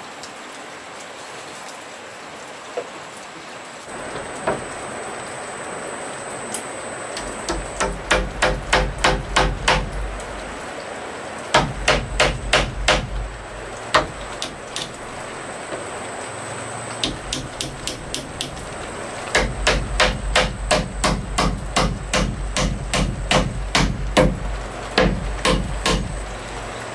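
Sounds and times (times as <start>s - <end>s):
hammer on wooden beam: 7.2s - 10.2s, 11.5s - 15.1s, 17.0s - 18.7s, 19.3s - 26.3s.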